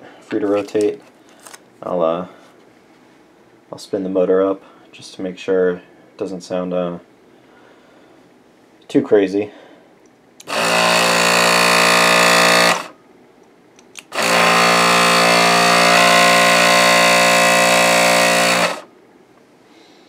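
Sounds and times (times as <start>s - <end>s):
electric motor whining: 10.4s - 13.0s, 14.0s - 18.9s.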